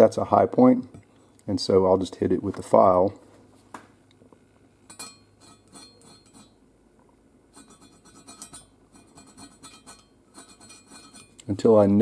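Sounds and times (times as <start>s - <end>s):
hand file rasping on metal: 5.0s - 6.5s, 7.6s - 11.4s.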